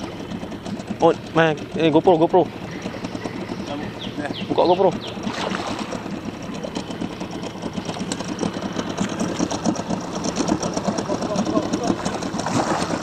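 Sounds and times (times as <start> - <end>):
fish splashing: 5.0 - 13.0.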